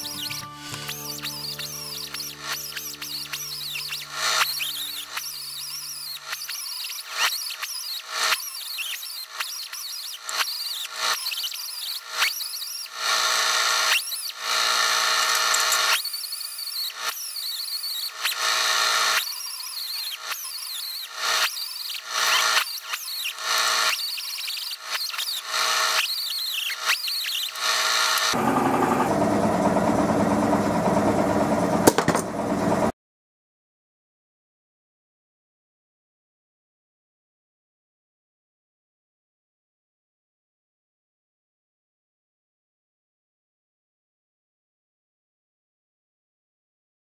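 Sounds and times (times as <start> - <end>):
die grinder whining: 0.0 - 32.9.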